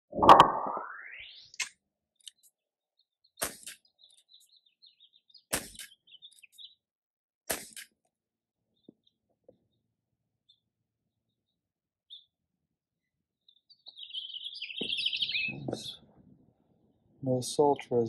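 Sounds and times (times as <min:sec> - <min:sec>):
birds chirping: 0:02.2 - 0:07.0, 0:08.6 - 0:10.7, 0:13.0 - 0:18.0
toy gun popping: 0:03.4 - 0:03.8, 0:05.5 - 0:06.0, 0:07.5 - 0:07.9.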